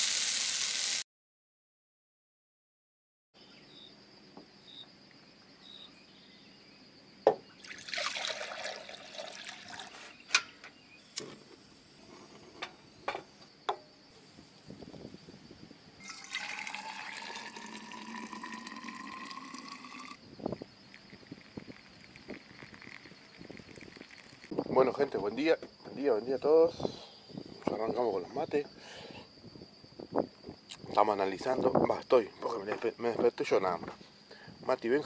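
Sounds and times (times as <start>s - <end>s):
water pouring into container: 7.6s - 10.1s, 16.0s - 24.5s.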